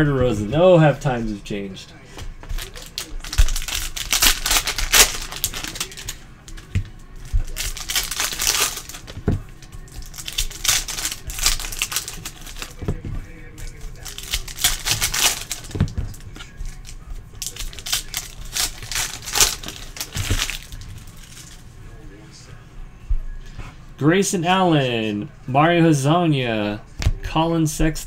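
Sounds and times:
wrapper crinkling and tearing: 2.5s - 21.6s.

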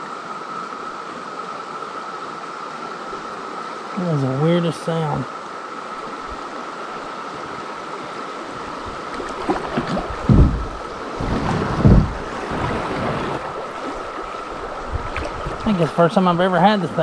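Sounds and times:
cicada chorus drone: 0.0s - 12.4s
river water rushing over rocks: 0.0s - 17.0s
low thumps: 9.6s - 12.4s.

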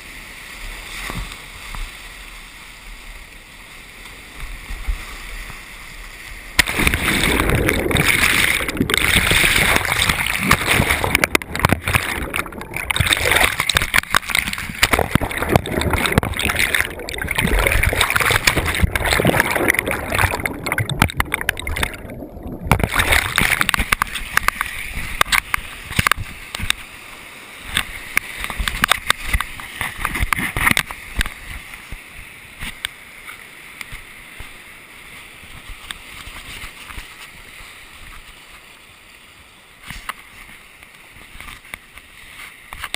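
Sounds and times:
rapids rushing and splashing: 0.0s - 42.9s
water slapping on microphone: 6.5s - 26.9s, 27.6s - 32.0s.

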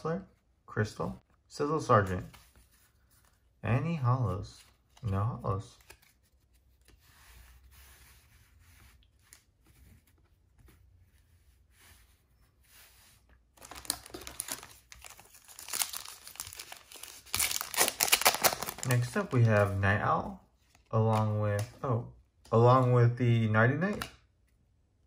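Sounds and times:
cards rustling: 1.2s - 11.1s, 12.8s - 21.8s, 23.8s - 24.2s
foil wrapper tearing open: 13.6s - 19.1s.

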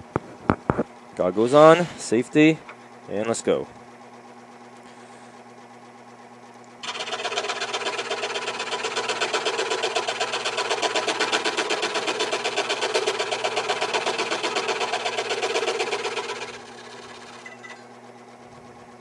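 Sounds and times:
scroll saw cutting wood: 6.8s - 17.6s.

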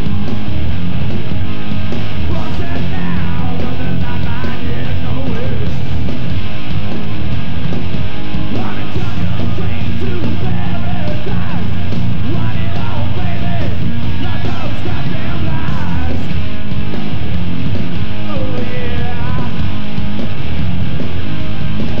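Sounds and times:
bass: 0.0s - 22.0s
distorted electric guitars: 0.0s - 22.0s
drums: 0.0s - 22.0s
shouted lead vocal: 2.2s - 6.1s, 8.5s - 16.6s, 18.1s - 20.0s.

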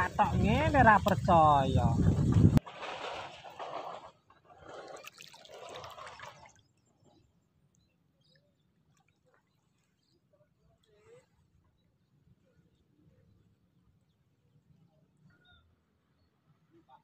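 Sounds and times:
water sloshing and splashing: 1.9s - 7.1s.

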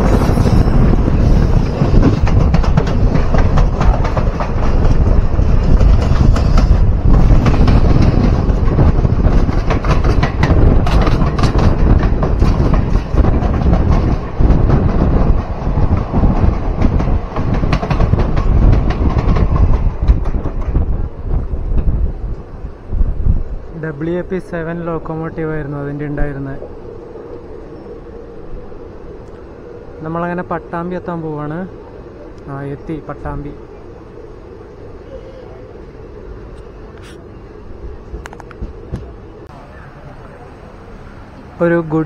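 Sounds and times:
train wheels clattering over rails: 0.0s - 22.0s
wind rushing: 0.0s - 39.6s
train running noise: 0.0s - 42.0s.

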